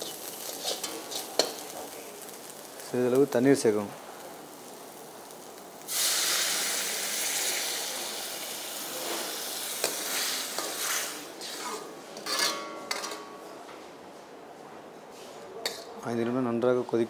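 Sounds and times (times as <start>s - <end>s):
loud sizzle in hot pan: 0.0s - 13.0s
metal ladle clinking against pan: 12.2s - 13.4s.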